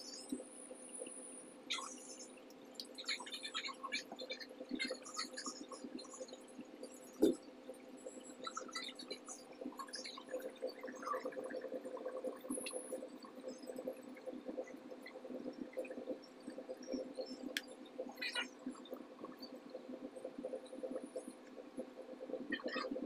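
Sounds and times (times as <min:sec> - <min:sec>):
faint clicks: 0:08.4 - 0:23.0.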